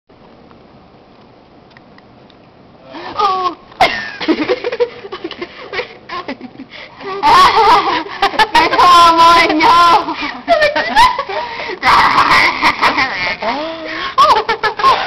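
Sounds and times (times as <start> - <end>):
woman making vocal sounds: 3.1 - 3.6, 11.8 - 14.4
woman laughing: 3.2 - 15.0.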